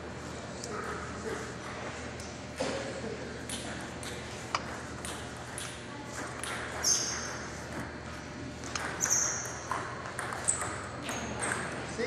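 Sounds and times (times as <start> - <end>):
table tennis ball clicks: 3.5 - 7.4.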